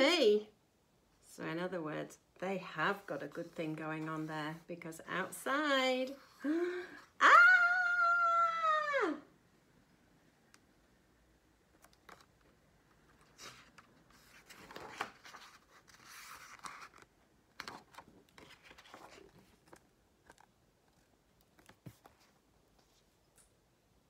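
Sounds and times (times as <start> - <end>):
paper pages rustling: 11.8 - 23.2.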